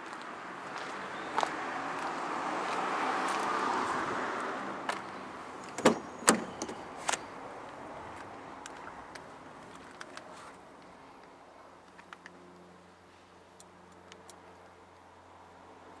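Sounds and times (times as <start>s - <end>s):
car door handle clicking: 5.7s - 6.8s.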